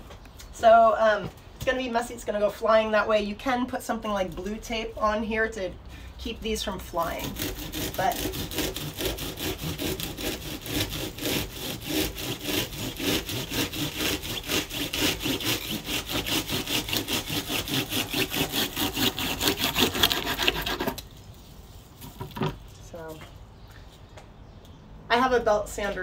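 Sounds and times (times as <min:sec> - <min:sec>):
knife sawing through dried stalks: 0:06.9 - 0:22.2.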